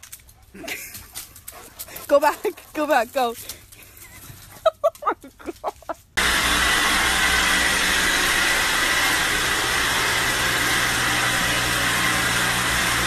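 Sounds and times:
robot vacuum cleaner running: 6.2s - 13.0s.

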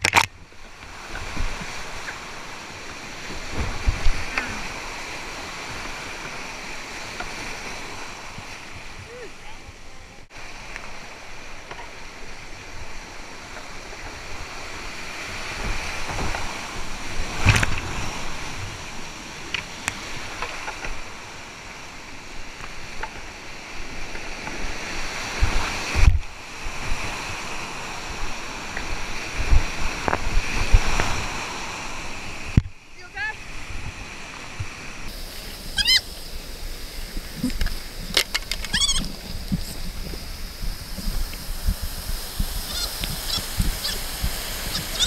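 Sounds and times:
water splashing on camera: 35.0s - 45.0s
whitewater rapids rushing: 35.1s - 45.0s.

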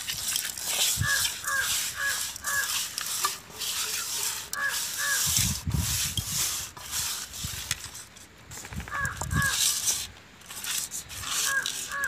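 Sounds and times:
hands rubbing wet fish: 0.0s - 8.2s, 8.9s - 12.0s
bird calling: 1.0s - 2.8s, 4.5s - 5.4s, 11.3s - 12.0s.

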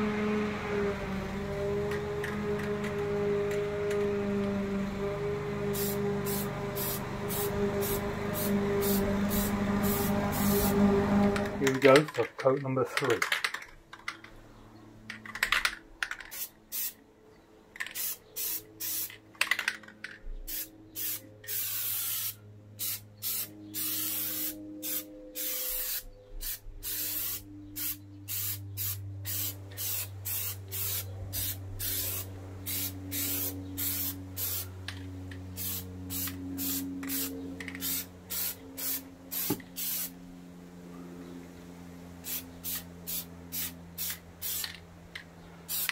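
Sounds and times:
aerosol spray can hissing: 5.7s - 10.8s, 20.5s - 34.6s, 35.6s - 40.1s, 42.3s - 44.7s, 45.7s - 45.9s.

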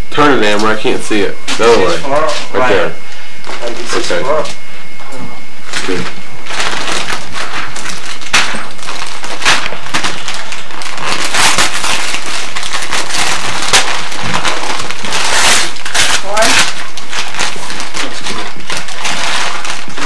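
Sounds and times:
wrapping paper tearing and crinkling: 5.6s - 20.0s.

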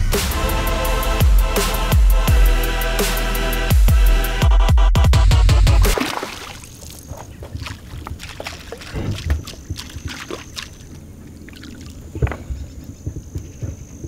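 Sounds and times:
heavy-bass electronic music: 0.0s - 6.0s
fish splashing in water: 5.9s - 12.2s.

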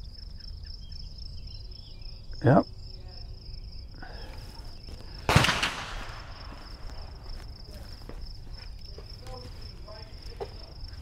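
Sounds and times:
rifle shot with echo: 5.2s - 6.8s.

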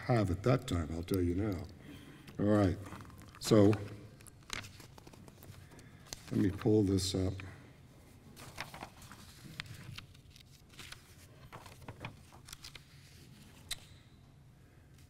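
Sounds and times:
paper rustling: 2.5s - 7.4s, 8.0s - 13.8s.

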